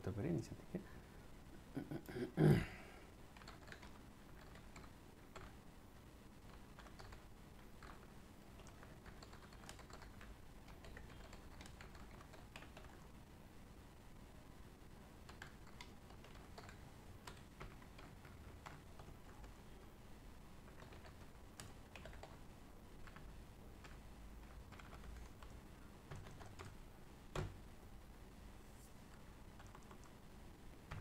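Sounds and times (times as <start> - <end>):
keyboard typing clicks: 3.4 - 5.6, 6.4 - 7.2, 8.6 - 13.0, 15.2 - 19.6, 20.7 - 22.4, 23.0 - 25.5, 26.1 - 27.6, 29.5 - 30.2.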